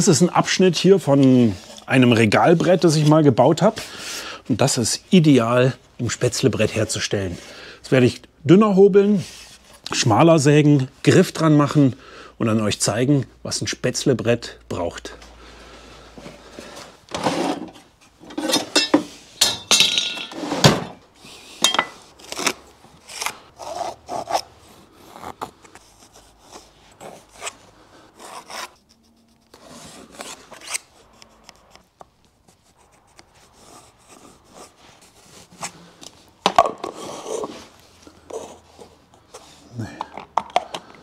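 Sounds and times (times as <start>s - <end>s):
pencil rubbing on wood: 25.8s - 27.6s, 28.2s - 31.8s, 32.4s - 35.7s, 38.2s - 39.5s.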